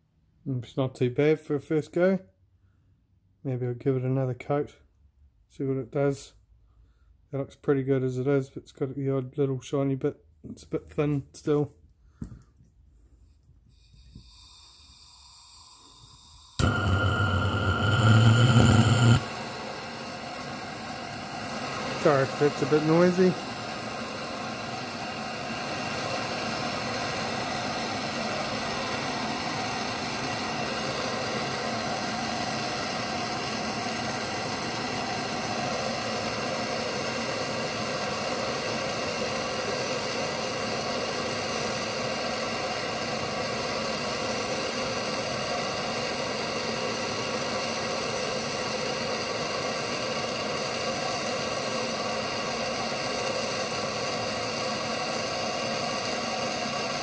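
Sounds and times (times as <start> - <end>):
gas torch hissing: 13.7 - 57.0.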